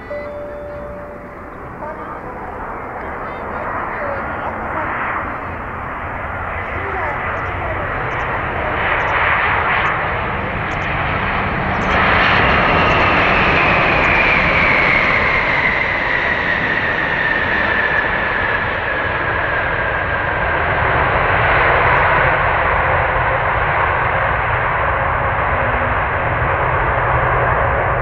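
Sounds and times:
whine falling in pitch: 0.0s - 14.2s
jet engine noise: 0.0s - 28.0s.

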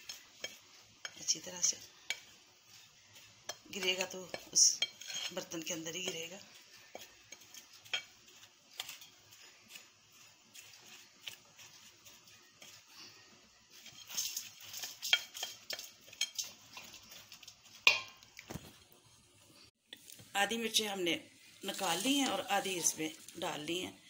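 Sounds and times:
spoon scraping a plate: 0.0s - 18.2s.

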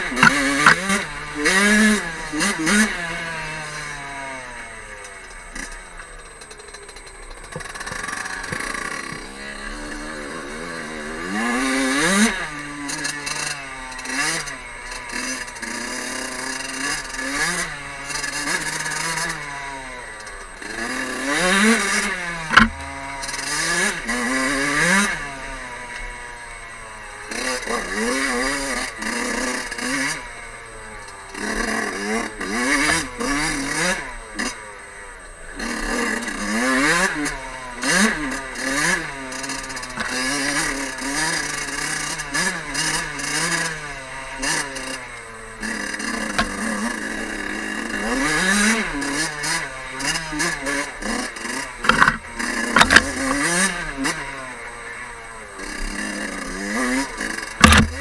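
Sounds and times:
two-stroke engine revving: 0.0s - 58.0s
sharp knocks: 22.5s - 22.9s, 52.8s - 53.4s, 57.6s - 58.0s.

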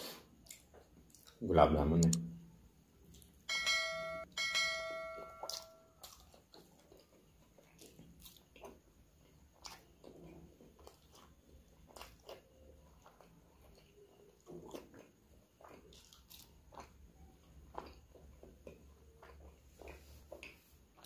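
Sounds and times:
chewing and lip smacks: 0.3s - 1.4s, 5.4s - 21.0s
notification bell chimes: 3.5s - 5.5s.

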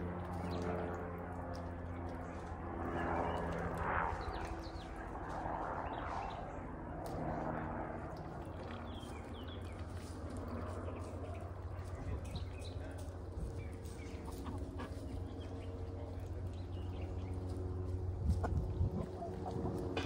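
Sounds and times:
low machine hum: 0.0s - 20.0s
small birds chirping: 8.4s - 20.0s.

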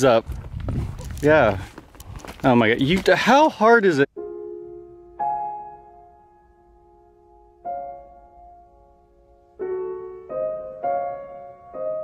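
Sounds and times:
slow piano chord ringing: 4.1s - 12.0s.

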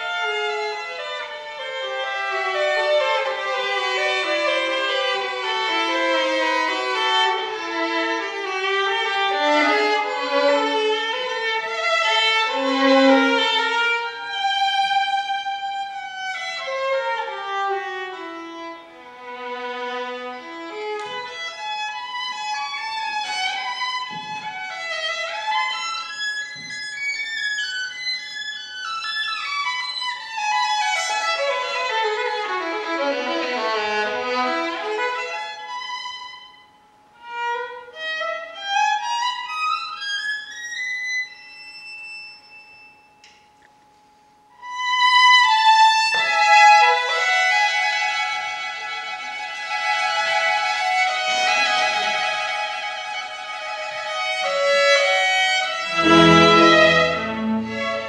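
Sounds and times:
violin scale runs: 55.8s - 58.0s.

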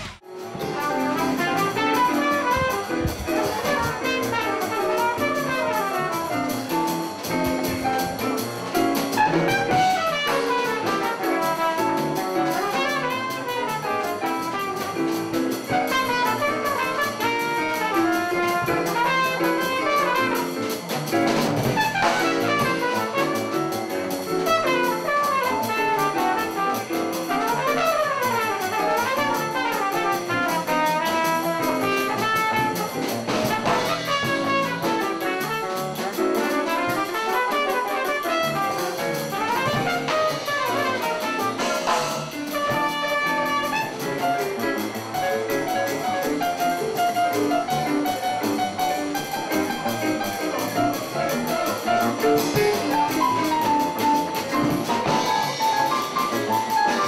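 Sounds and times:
trumpet solo: 0.0s - 7.1s, 9.1s - 20.8s, 21.6s - 23.8s, 24.4s - 44.5s
drum kit: 0.0s - 57.0s
upright bass: 0.0s - 57.0s.

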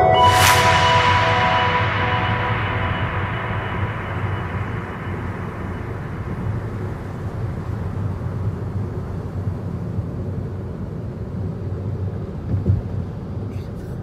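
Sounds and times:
car cabin road rumble: 12.2s - 14.0s.

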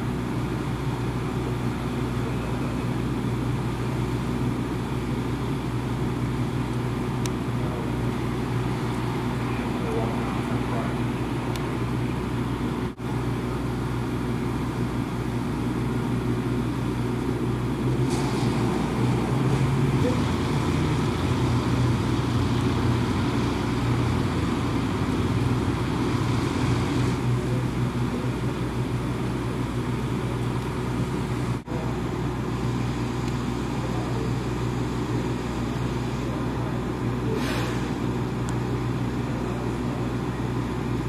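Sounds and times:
engine droning: 0.0s - 41.0s
short hiss: 37.3s - 38.0s.

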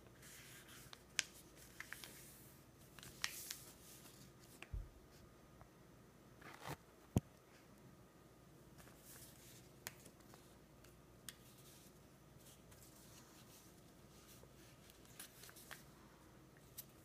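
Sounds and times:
paper rustling and creasing: 0.2s - 4.7s.

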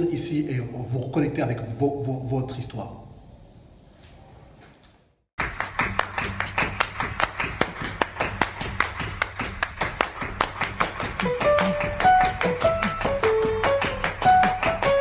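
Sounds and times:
fast rhythmic claps: 5.4s - 15.0s.

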